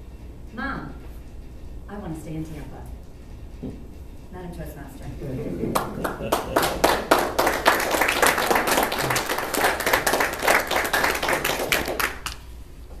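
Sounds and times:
audience applauding: 0:05.7 - 0:12.4.

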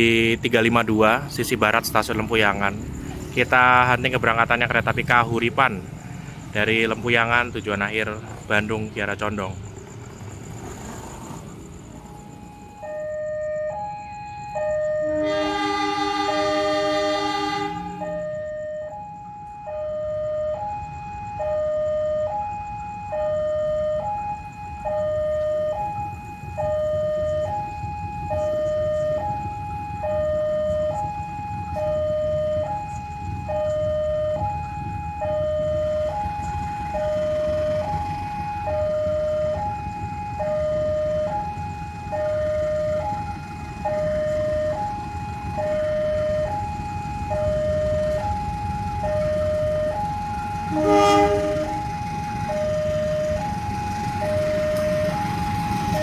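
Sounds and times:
level crossing two-tone alarm: 0:11.6 - 0:56.0.

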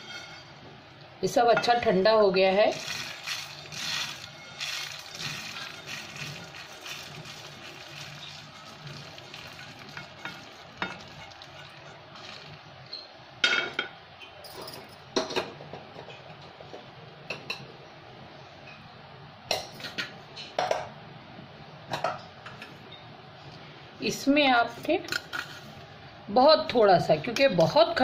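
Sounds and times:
kitchen utensils clinking: 0:02.7 - 0:12.6.

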